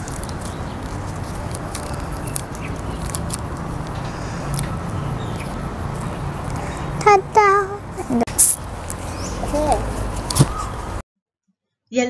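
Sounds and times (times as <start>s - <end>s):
paper and tape crinkling: 0.0s - 4.7s.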